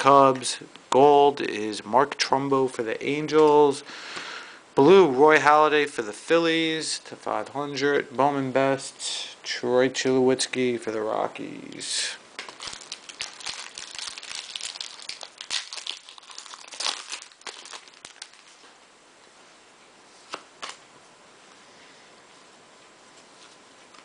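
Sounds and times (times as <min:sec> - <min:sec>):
foil wrapper crinkling and tearing: 0:12.4 - 0:18.6
cards handling: 0:20.2 - 0:20.8.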